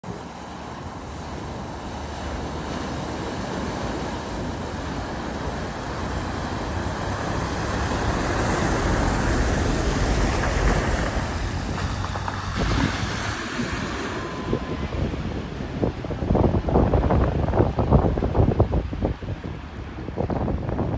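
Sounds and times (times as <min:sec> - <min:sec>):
vehicle engine rumbling: 0:00.0 - 0:18.2
water splashing hiss: 0:00.1 - 0:15.9.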